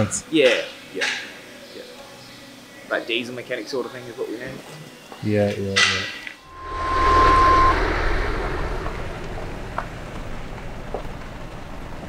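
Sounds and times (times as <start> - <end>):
steady tone: 6.4 - 10.9
wind on microphone: 6.5 - 10.9.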